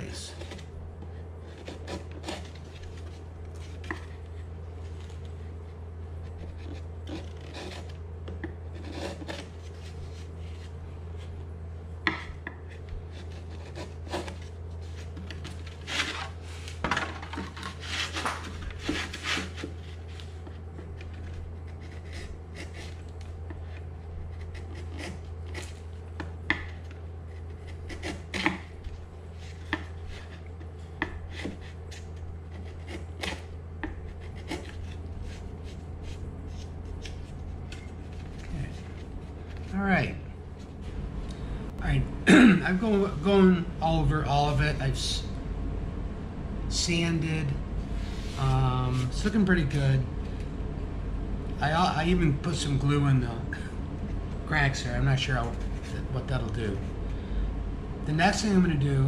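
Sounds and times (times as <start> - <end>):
steady low hum: 0.0 - 59.0
chisel scraping wood: 0.3 - 5.3, 6.2 - 10.8, 12.1 - 16.5, 17.4 - 39.7.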